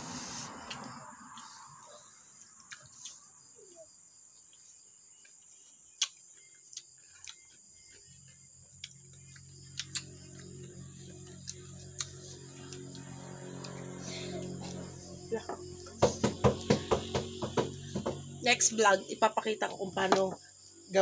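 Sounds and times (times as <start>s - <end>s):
crickets chirring: 0.0s - 21.0s.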